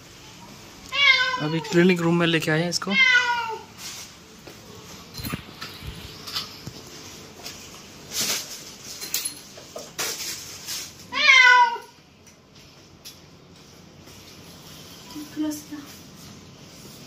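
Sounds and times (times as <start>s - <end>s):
cat meowing: 0.9s - 1.8s, 2.9s - 3.7s, 11.1s - 12.0s.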